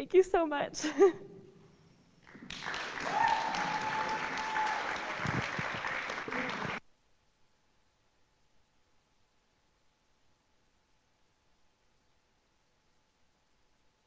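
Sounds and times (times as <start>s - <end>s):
audience applauding: 2.2s - 6.8s
long held cheer: 2.3s - 6.8s.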